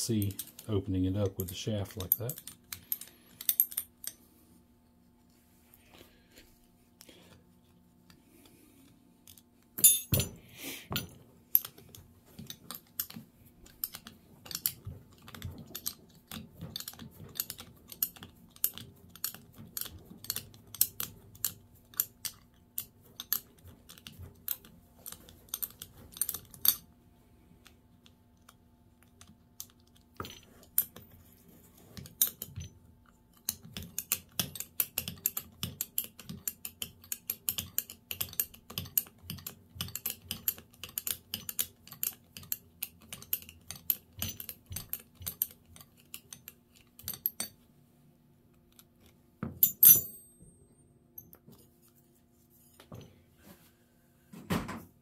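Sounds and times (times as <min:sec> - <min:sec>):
small metallic clicks: 0:00.1 - 0:04.2, 0:11.5 - 0:26.9, 0:32.0 - 0:47.6.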